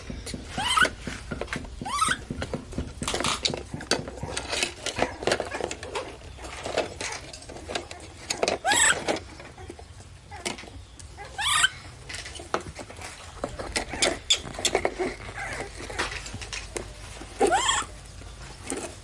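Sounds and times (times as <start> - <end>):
plastic crinkling and rattling: 0.0 - 19.0
baby monkey squeaking: 0.5 - 1.1, 1.8 - 2.3, 8.6 - 9.1, 11.2 - 11.9, 13.9 - 15.6, 17.4 - 18.0.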